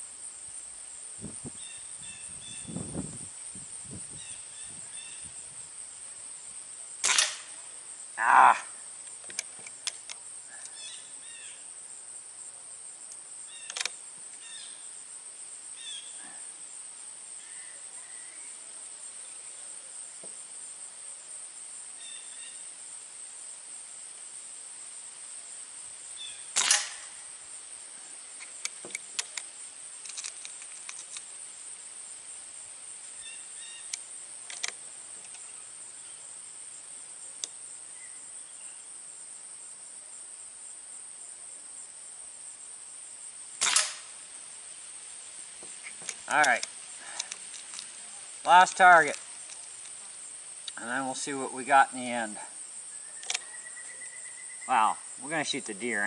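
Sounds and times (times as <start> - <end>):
high insect buzz: 0.0 - 56.0
air rifle cracks: 7.0 - 7.6, 13.6 - 14.0, 26.6 - 27.2, 43.6 - 44.2, 46.0 - 47.9
light clicks: 45.8 - 47.9.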